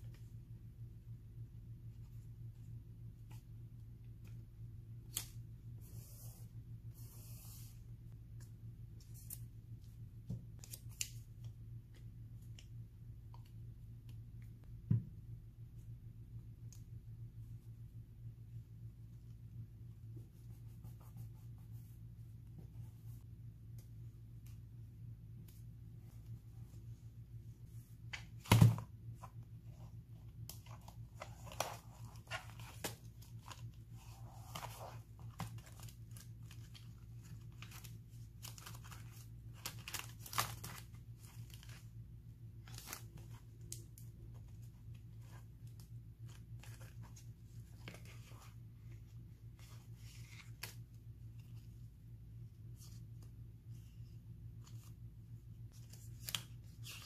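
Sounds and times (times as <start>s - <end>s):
faint steady hum: 0.0s - 57.0s
paper and plastic sleeves rustling: 25.4s - 57.0s.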